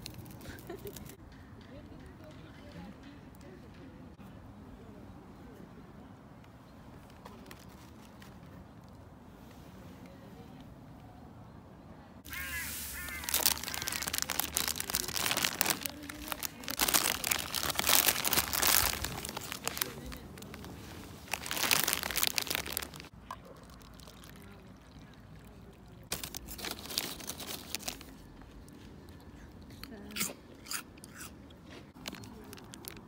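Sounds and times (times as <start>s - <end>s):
plastic wrappers crinkling: 12.3s - 24.9s, 26.1s - 28.2s, 32.0s - 33.0s.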